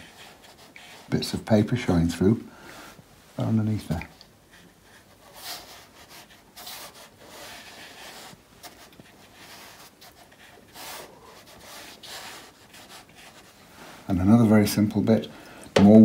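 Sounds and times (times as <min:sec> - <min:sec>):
brush rubbing on paper: 0:00.0 - 0:01.5, 0:04.4 - 0:14.5.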